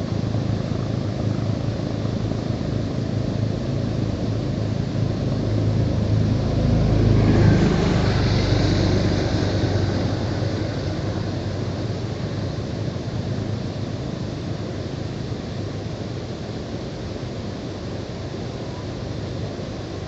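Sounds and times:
vehicle rumble: 0.0s - 16.3s.

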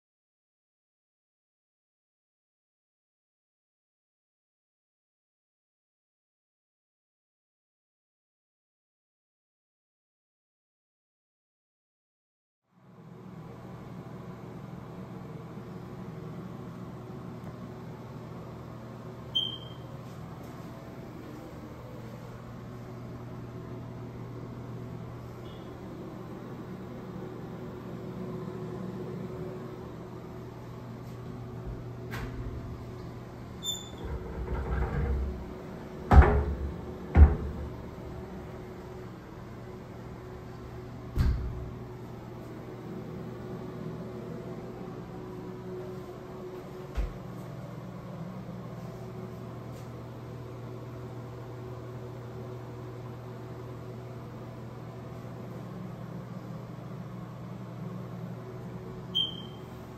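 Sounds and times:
low mechanical hum: 12.7s - 59.9s.

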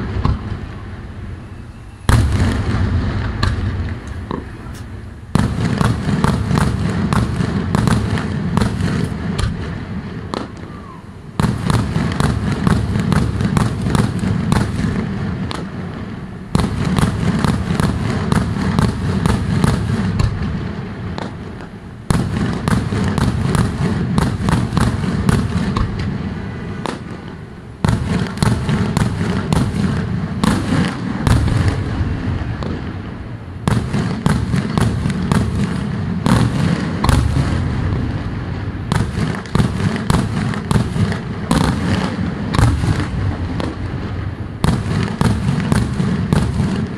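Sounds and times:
deep booms of aerial shells: 0.0s - 15.7s
fireworks cracking: 0.0s - 46.9s.

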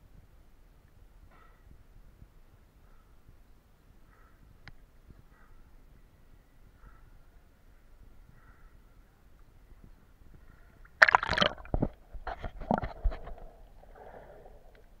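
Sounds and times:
seawater splashing and gurgling: 11.0s - 12.0s
muffled underwater wash: 11.0s - 15.0s
underwater bubbles: 11.0s - 15.0s.

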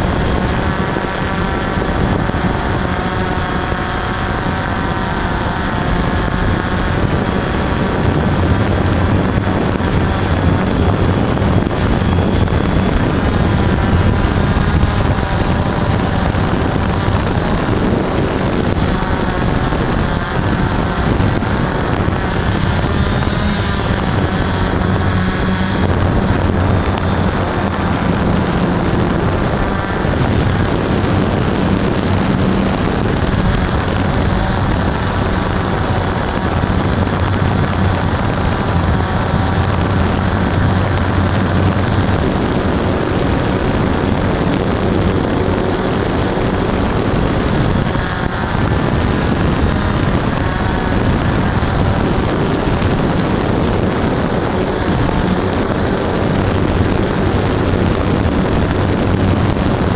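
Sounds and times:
drone motors whining: 0.0s - 59.9s.

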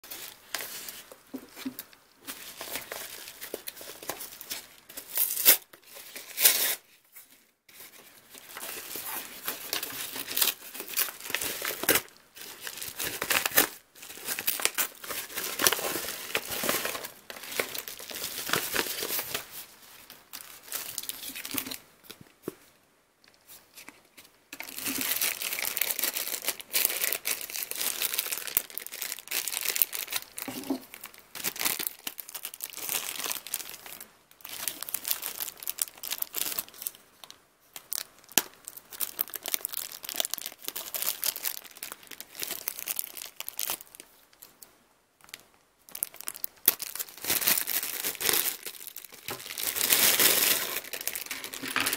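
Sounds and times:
plastic bag crinkling: 7.7s - 21.8s, 24.6s - 37.0s, 37.8s - 44.6s, 45.3s - 51.9s.

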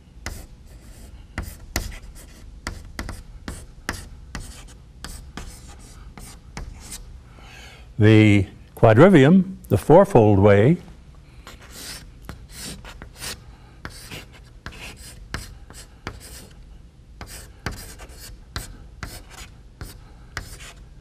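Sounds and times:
chalk scratching on a blackboard: 0.2s - 7.0s, 11.4s - 16.6s, 17.2s - 20.8s.

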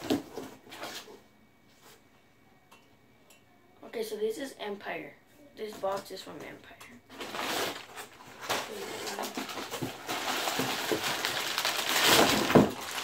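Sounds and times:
packing paper rustling: 7.1s - 13.0s.

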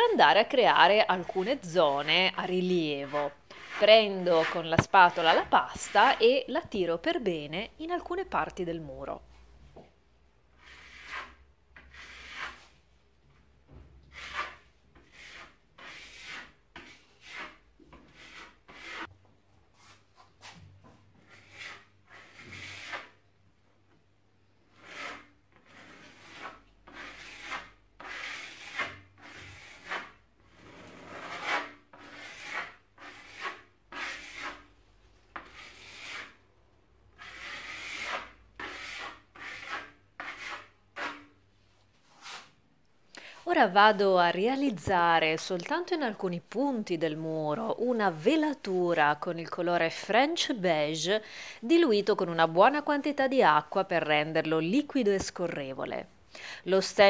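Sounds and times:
spatula scraping plaster on wall: 0.0s - 6.4s, 10.5s - 12.9s, 14.0s - 19.1s, 19.7s - 23.2s, 24.7s - 36.4s, 37.1s - 42.6s, 45.5s - 50.4s, 51.1s - 54.4s.

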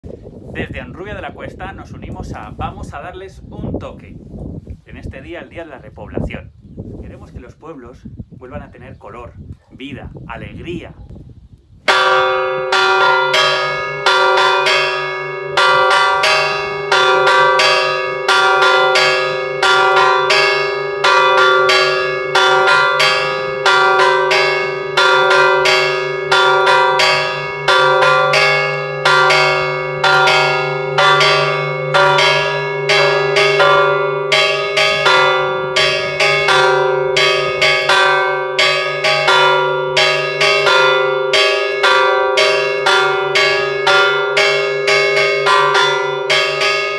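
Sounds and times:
church bell ringing: 11.9s - 46.9s.

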